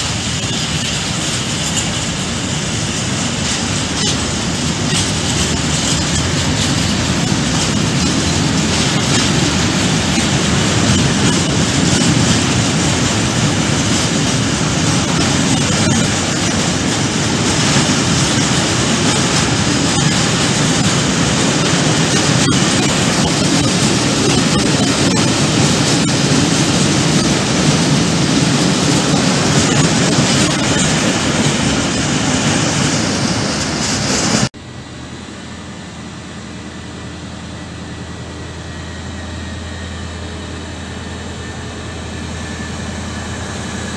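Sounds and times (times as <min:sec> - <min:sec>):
wheels clacking on rail: 0:00.0 - 0:34.5
freight train rumbling past: 0:00.0 - 0:43.9
train low hum: 0:00.0 - 0:43.9.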